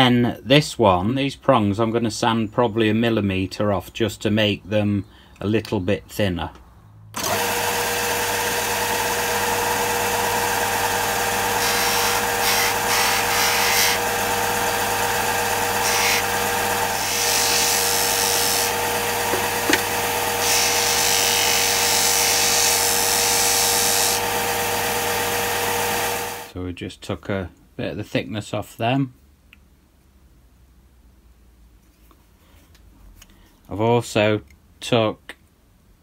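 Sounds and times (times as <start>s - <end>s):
sander motor hum: 7.2s - 26.5s
metal grinding on sanding disc: 11.6s - 14.0s, 15.8s - 24.2s.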